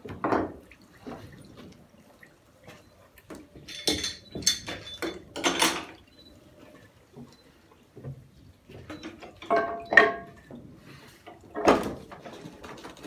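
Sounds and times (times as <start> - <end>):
knocks and clatter of handling: 0.0 - 0.6, 3.3 - 6.0, 8.0 - 10.6, 11.3 - 13.0
trickle of running liquid: 0.0 - 13.0.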